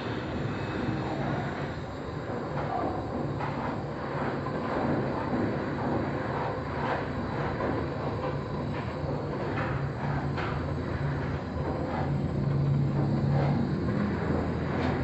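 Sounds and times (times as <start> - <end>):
butane torch burning: 0.0 - 15.0.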